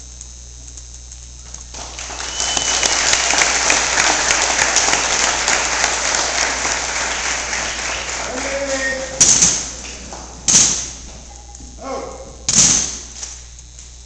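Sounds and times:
audience applauding: 0:01.7 - 0:10.5
close hand claps: 0:01.7 - 0:11.0.

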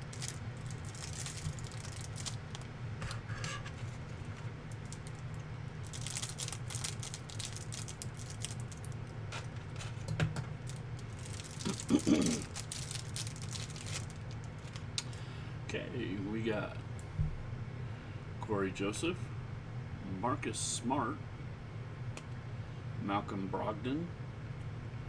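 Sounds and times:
plastic wrap crinkling: 0:00.0 - 0:15.2
steady low hum: 0:00.0 - 0:25.0.

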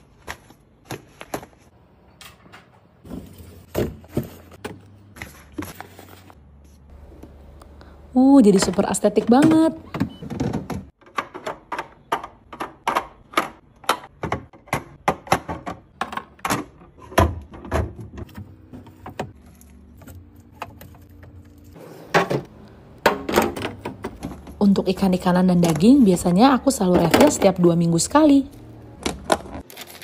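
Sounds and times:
plastic bins clacking: 0:08.5 - 0:19.3, 0:22.1 - 0:27.7.

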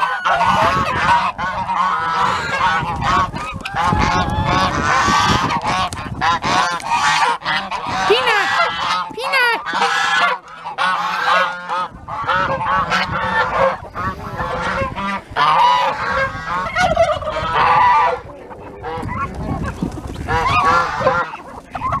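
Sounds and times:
geese honking: 0:00.0 - 0:22.0.

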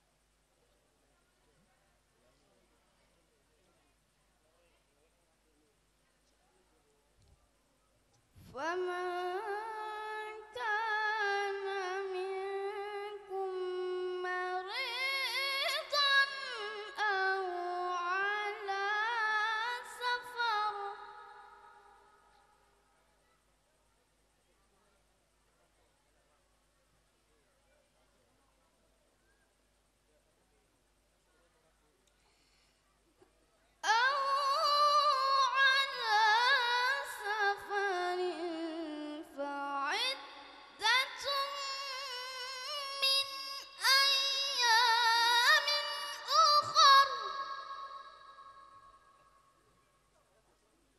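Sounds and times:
boy reciting melodically: 0:08.5 - 0:22.2, 0:33.8 - 0:49.2.

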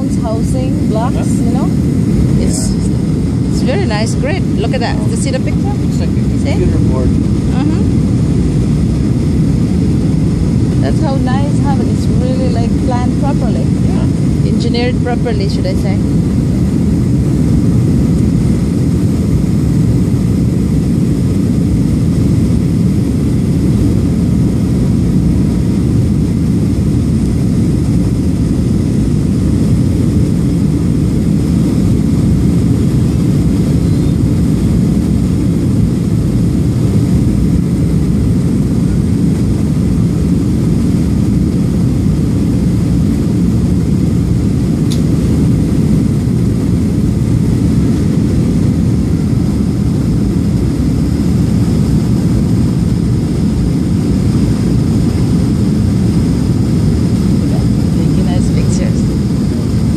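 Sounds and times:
airplane cabin engine rumble: 0:00.0 - 0:59.9.

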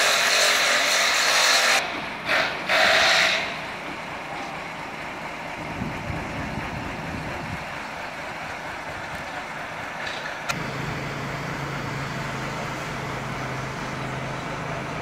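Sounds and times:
traffic noise: 0:00.0 - 0:15.0
low engine hum: 0:03.6 - 0:15.0.

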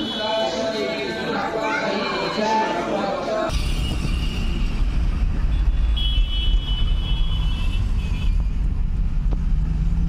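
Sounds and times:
car engine and tyre rumble: 0:03.8 - 0:10.0.

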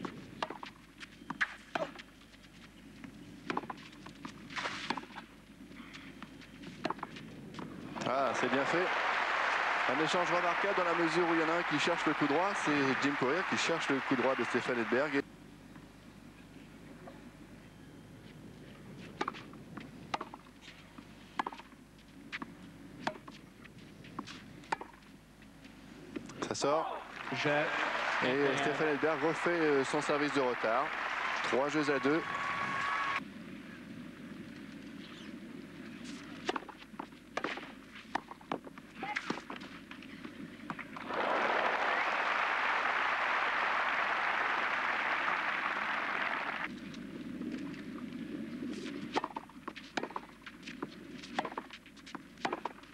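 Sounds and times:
crowd applauding: 0:08.1 - 0:15.2, 0:27.1 - 0:33.2, 0:41.0 - 0:46.7
tennis ball pops: 0:52.4 - 0:52.8.

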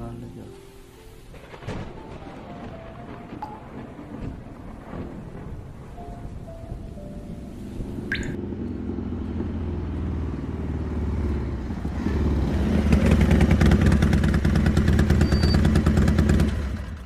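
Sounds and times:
motorcycle engine running: 0:07.9 - 0:17.0.

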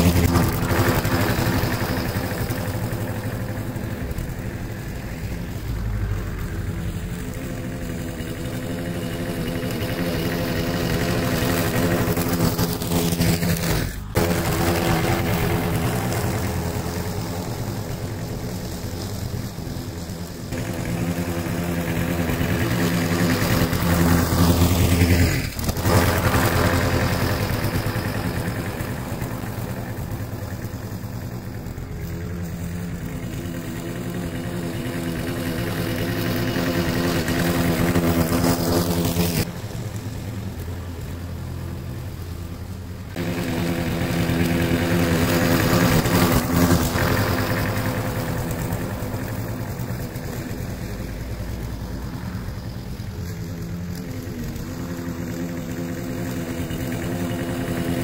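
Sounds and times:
lawn mower engine running: 0:00.0 - 0:58.0.

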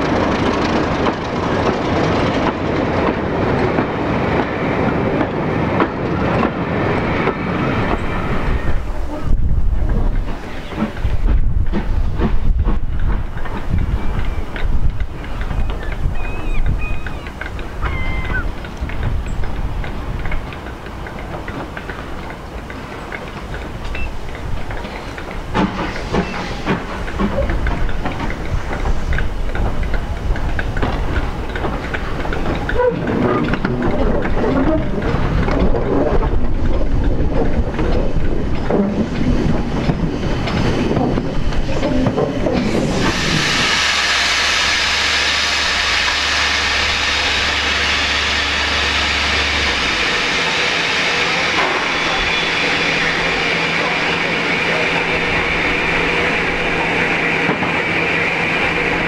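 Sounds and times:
steam locomotive passing: 0:00.0 - 0:59.0
steam hissing loudly: 0:25.0 - 0:27.0, 0:40.2 - 0:59.0.

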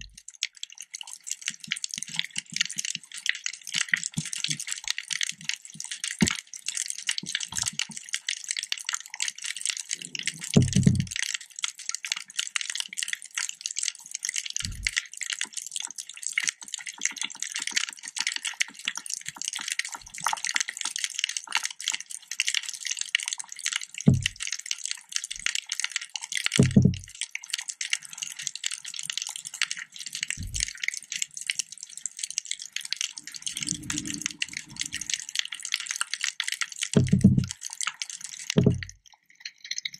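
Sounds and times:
dense underwater crackling: 0:00.0 - 0:39.9
short low thumps: 0:24.1 - 0:24.3, 0:26.6 - 0:27.0, 0:37.0 - 0:37.5.

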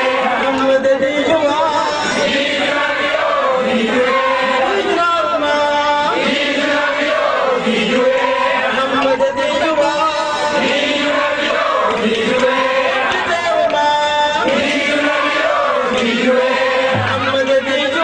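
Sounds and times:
men chanting a devotional song: 0:00.0 - 0:18.0.

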